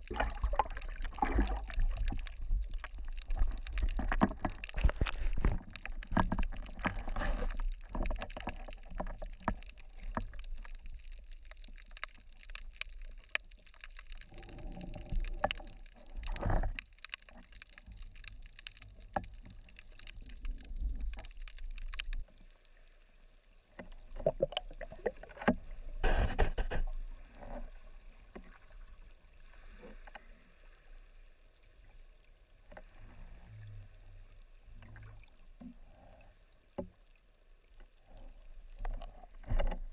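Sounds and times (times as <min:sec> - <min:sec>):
underwater clicks and knocks: 0:00.0 - 0:22.3, 0:23.8 - 0:27.6, 0:38.8 - 0:39.9
muffled underwater gurgling: 0:26.0 - 0:26.9.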